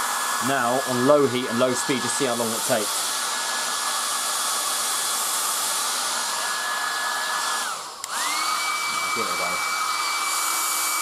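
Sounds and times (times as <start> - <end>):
hair dryer running: 0.0 - 11.0.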